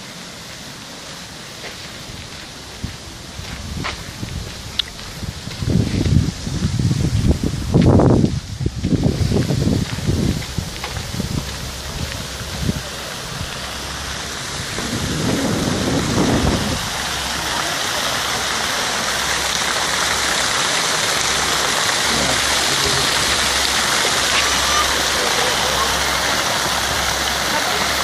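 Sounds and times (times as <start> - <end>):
fountain water splashing: 0.0 - 28.0
wind rumble on microphone: 2.0 - 18.7.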